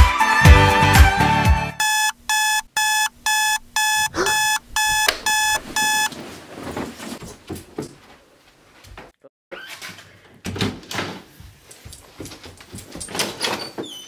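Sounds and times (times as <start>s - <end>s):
electronic alarm beeping: 1.8s - 6.1s.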